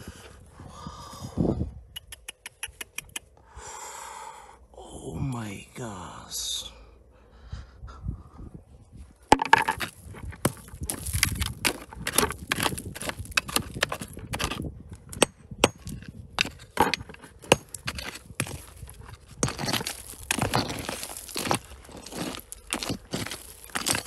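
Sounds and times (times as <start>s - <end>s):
stones and gravel crunching: 9.2s - 24.0s.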